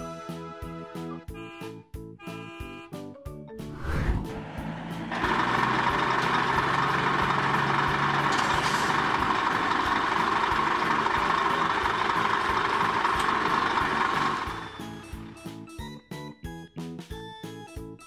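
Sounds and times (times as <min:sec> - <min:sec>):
steady rushing noise: 0:03.7 - 0:04.6
low engine hum: 0:03.7 - 0:15.4.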